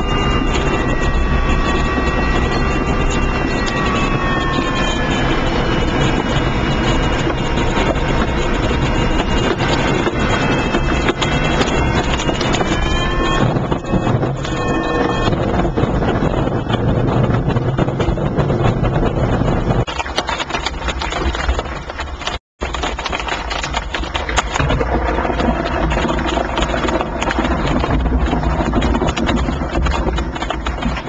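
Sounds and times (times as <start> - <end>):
wind on microphone: 0.0 - 31.0
rain pattering on glass: 19.8 - 31.0.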